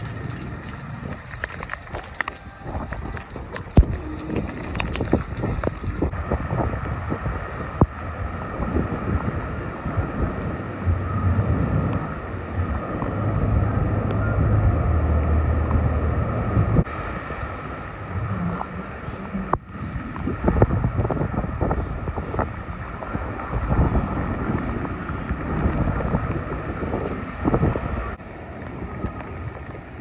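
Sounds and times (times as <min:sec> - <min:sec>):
surf breaking on beach: 0:00.0 - 0:14.5
wind buffeting microphone: 0:00.0 - 0:30.0.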